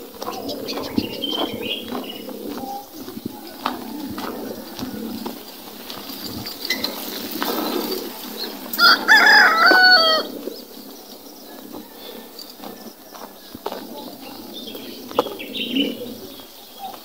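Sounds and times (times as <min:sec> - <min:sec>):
rooster crowing: 0:03.4 - 0:05.2, 0:08.7 - 0:10.3.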